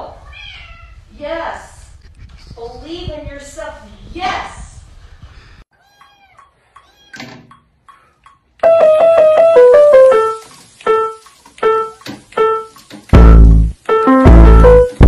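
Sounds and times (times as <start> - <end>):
piano music: 8.6 - 15.0.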